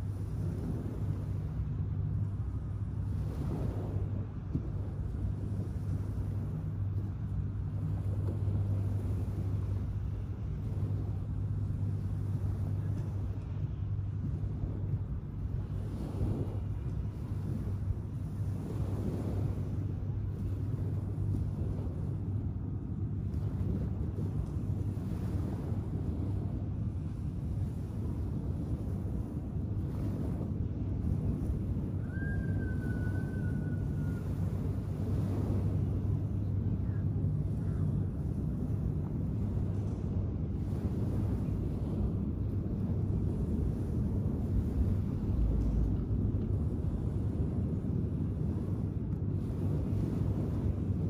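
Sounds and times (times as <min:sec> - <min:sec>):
low motor hum: 0:00.0 - 0:51.0
ocean surf on beach: 0:00.0 - 0:51.0
small waves washing on sand: 0:00.0 - 0:51.0
wind rumble on microphone: 0:00.0 - 0:51.0
thin whistle-like tone: 0:32.0 - 0:34.5.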